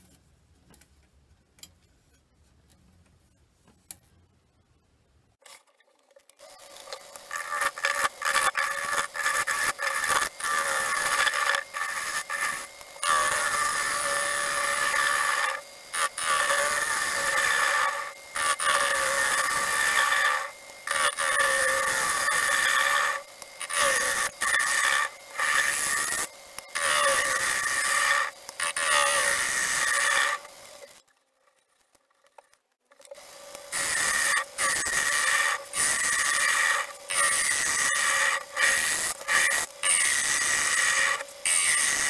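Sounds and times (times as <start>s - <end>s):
lathe gouge scraping wood: 6.7s - 30.9s, 33.5s - 42.0s.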